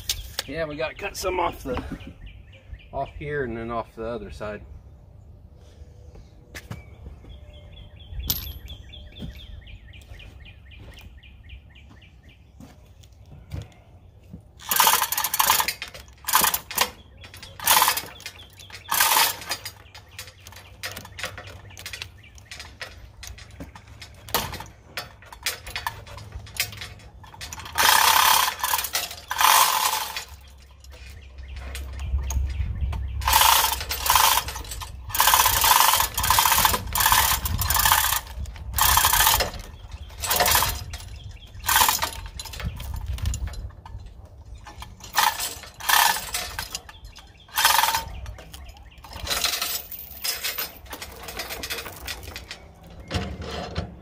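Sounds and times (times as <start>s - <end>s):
hoist chain rattling: 14.6s - 53.9s.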